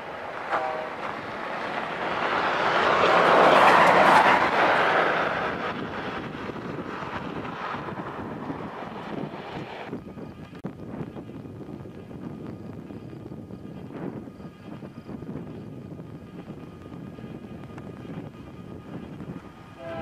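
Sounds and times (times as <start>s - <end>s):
vehicle passing by: 0.8s - 9.9s.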